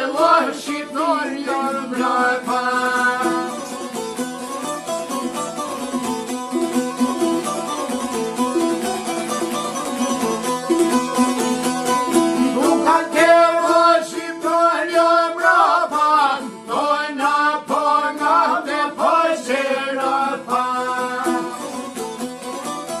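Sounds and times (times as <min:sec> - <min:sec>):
man singing folk song: 0:00.0 - 0:03.9, 0:12.3 - 0:22.0
plucked string instrument: 0:00.0 - 0:23.0.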